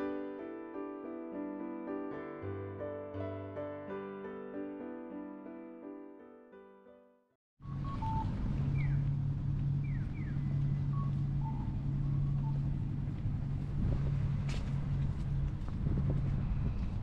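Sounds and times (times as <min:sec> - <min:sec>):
vehicle engine running: 0:07.6 - 0:17.0.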